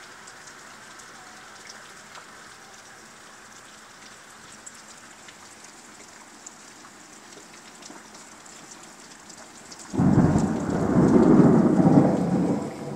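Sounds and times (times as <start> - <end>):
rain pattering on a window: 0.0 - 12.9
thunder clap and rumble: 10.0 - 12.9.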